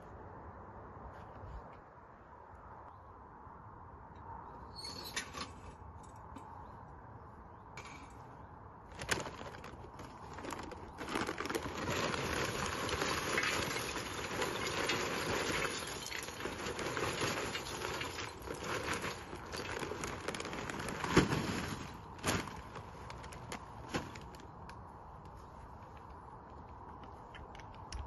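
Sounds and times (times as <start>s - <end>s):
charcoal pouring into metal bowl: 11.2s - 19.8s.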